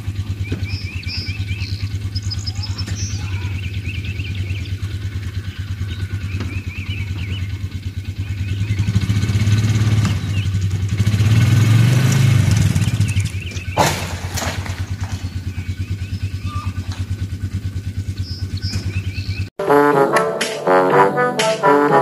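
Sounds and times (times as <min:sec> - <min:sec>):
birds chirping: 0:00.0 - 0:19.6
utility vehicle engine revving: 0:00.0 - 0:22.0.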